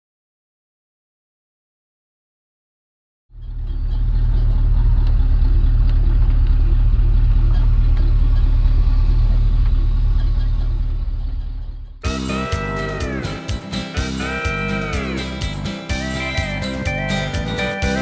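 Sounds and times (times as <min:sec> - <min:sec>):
vehicle driving on gravel road: 0:03.3 - 0:12.0.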